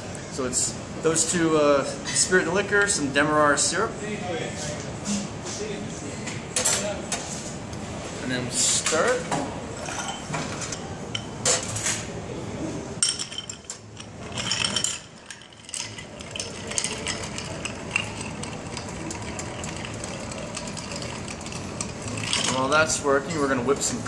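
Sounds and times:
spoon stirring ice in a glass: 13.0 - 22.9
ice cubes clattering into a glass: 14.3 - 22.7.

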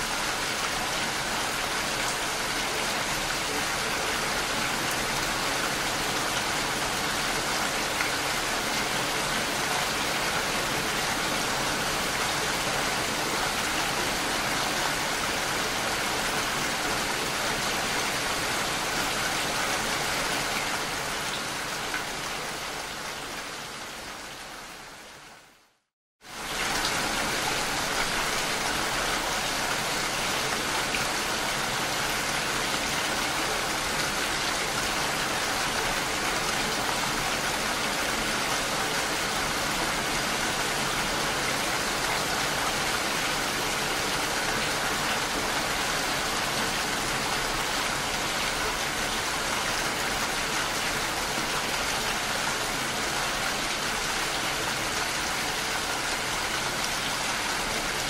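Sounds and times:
steady rain: 0.0 - 58.0.

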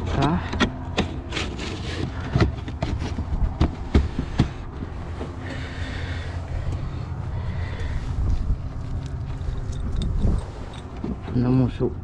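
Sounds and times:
steady low rumble: 0.0 - 12.0
scraping rustle: 1.0 - 3.6.

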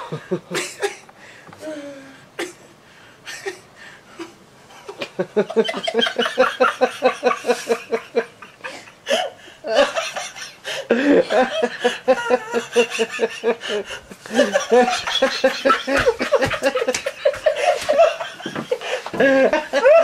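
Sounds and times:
person laughing: 4.2 - 20.0.

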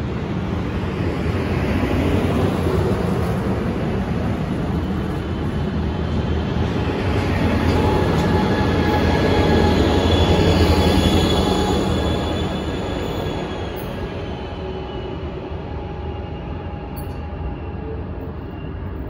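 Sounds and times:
train wheels rumbling on rail: 0.0 - 19.0
wheels squealing on rail: 6.6 - 19.0.

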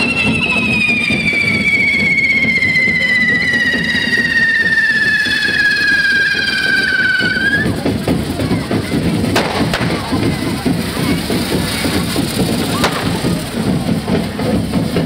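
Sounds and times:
falling firework whistle: 0.0 - 7.8, 12.5 - 13.8
firecracker bangs: 0.0 - 15.0
low rumble: 7.6 - 15.0.

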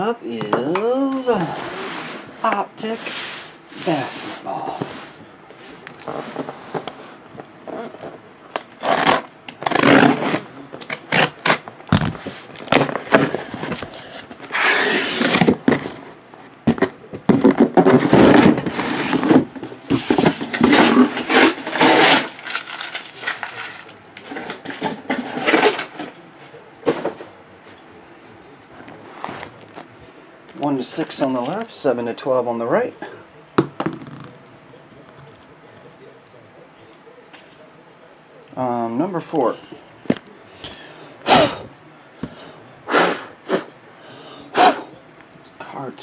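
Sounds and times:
tape tearing: 7.6 - 16.0, 16.7 - 26.0
boxes scraping and set down: 12.0 - 23.0, 24.2 - 26.2.

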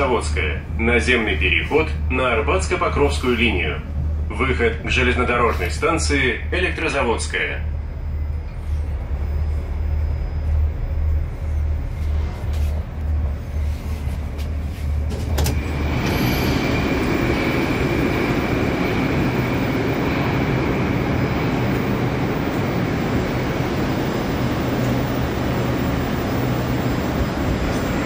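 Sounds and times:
metro platform noise: 0.0 - 28.0.

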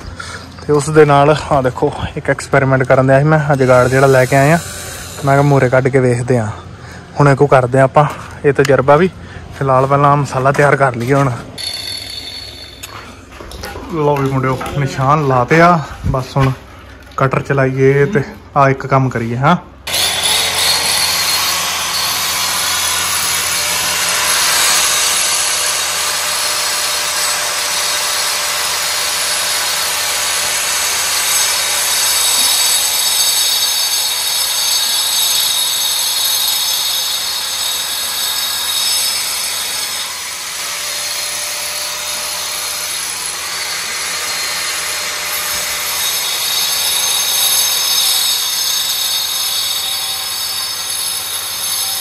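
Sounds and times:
angle grinder cutting into a wall: 2.8 - 6.1, 19.9 - 52.0.

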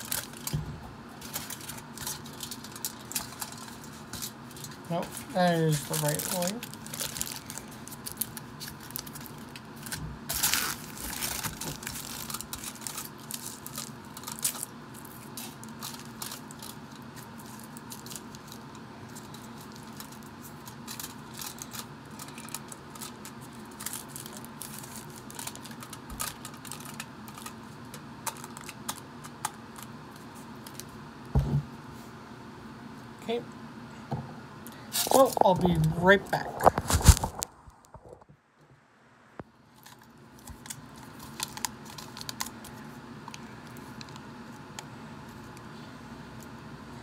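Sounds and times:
foil crinkling: 0.0 - 0.6, 1.2 - 30.9, 34.9 - 38.2, 39.7 - 44.3
thump: 31.3 - 31.6.

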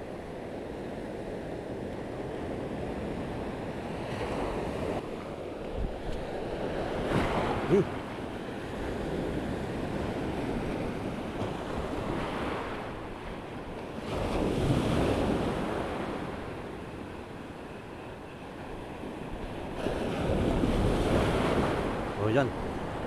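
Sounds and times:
surf breaking on beach: 5.8 - 13.0.

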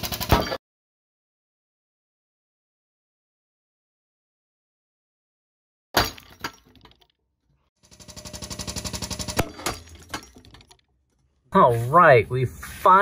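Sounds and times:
hydraulic pump pulsing rapidly: 7.8 - 9.6.

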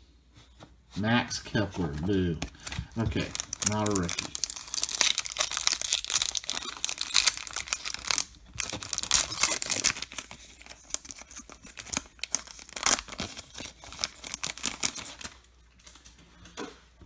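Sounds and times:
foil wrapper crinkling: 1.8 - 16.2
cards sliding out of wrapper: 2.5 - 15.4.

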